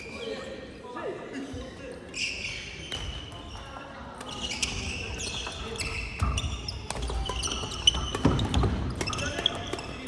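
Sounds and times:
shoes squeaking: 2.1s - 10.0s
rackets hitting shuttlecocks: 4.2s - 10.0s.

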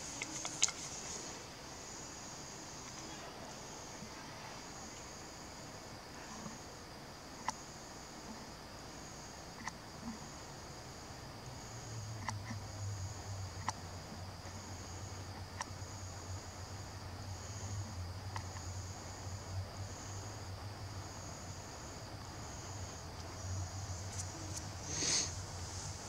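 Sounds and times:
faint clicks: 0.0s - 1.1s, 18.3s - 18.7s
insects chirping: 0.0s - 26.0s
low steady hum: 10.0s - 26.0s.

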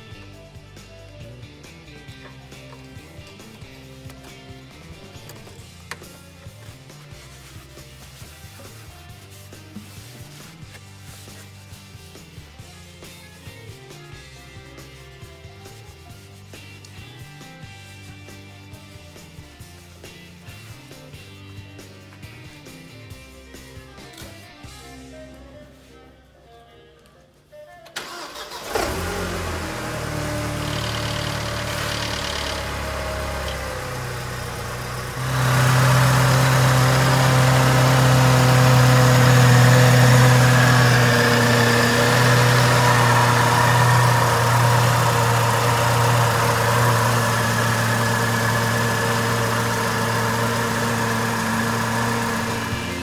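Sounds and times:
car engine starting and idling: 28.0s - 53.0s.

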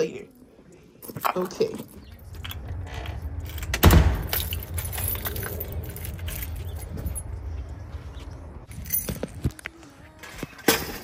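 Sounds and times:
keys jangling: 1.0s - 7.5s, 8.7s - 9.5s
steady low rumble: 2.0s - 9.6s.

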